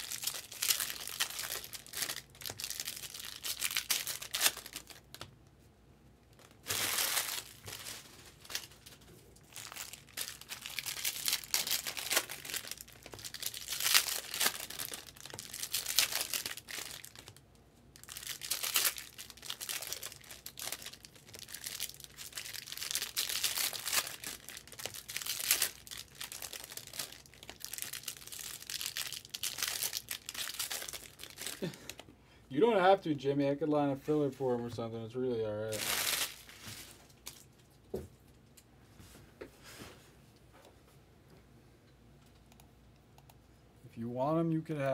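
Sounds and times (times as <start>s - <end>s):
foil wrappers crinkling and tearing: 0.0s - 5.3s, 6.3s - 17.4s, 18.0s - 32.0s, 35.6s - 37.6s.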